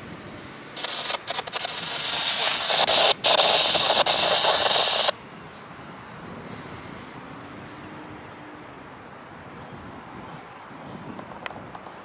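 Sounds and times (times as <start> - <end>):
faint outdoor background noise: 0.0 - 12.0
tinny scanner radio transmission: 0.8 - 5.2.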